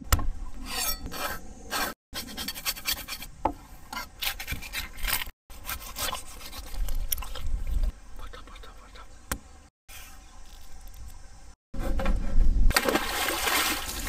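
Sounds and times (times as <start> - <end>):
knife scraping fish scales: 0.6 - 3.3, 3.9 - 7.4.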